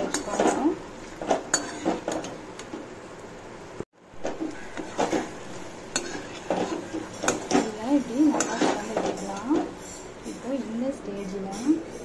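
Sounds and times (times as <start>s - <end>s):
metal spatula scraping a pan: 0.0s - 2.3s, 4.2s - 10.1s.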